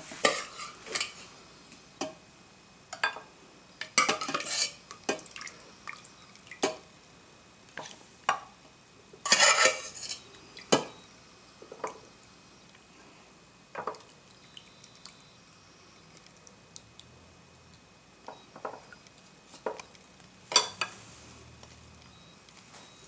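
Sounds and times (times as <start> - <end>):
metal spoon clinking and scraping: 9.3 - 10.3.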